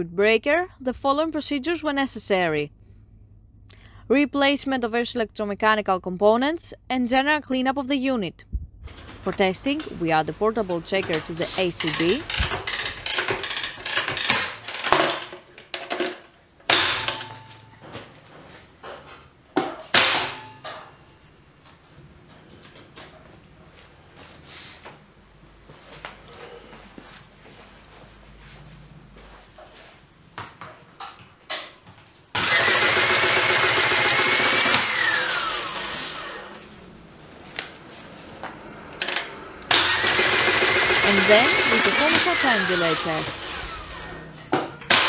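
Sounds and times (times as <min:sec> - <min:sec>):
motor running with whine: 0:38.4 - 0:44.8.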